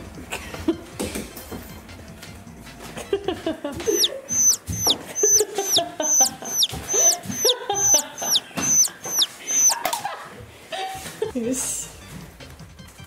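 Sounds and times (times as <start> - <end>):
playful background music: 0.0 - 8.0, 11.3 - 13.0
comic chicken-like sound: 3.8 - 9.9.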